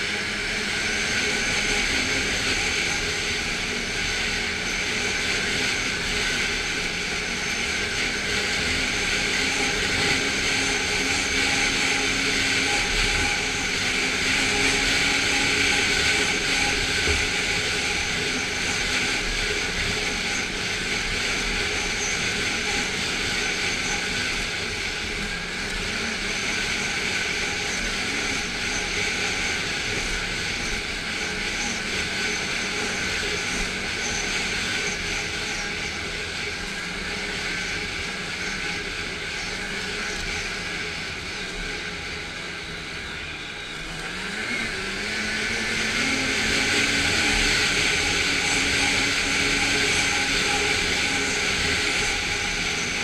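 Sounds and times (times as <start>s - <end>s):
snowmobile engine drone: 0.0s - 53.0s
track and wind noise: 0.0s - 53.0s.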